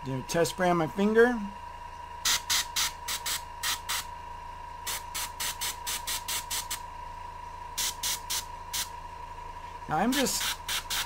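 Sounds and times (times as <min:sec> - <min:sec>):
airbrush hisses of spray: 0:07.8 - 0:08.9.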